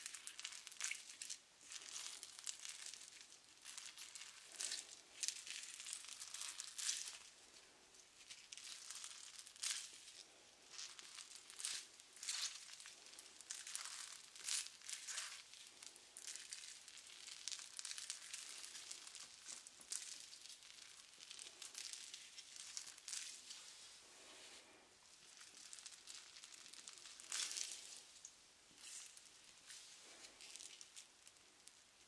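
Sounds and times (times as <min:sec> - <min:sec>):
sponge rubbing crinkly: 0:08.2 - 0:28.2, 0:28.8 - 0:31.7.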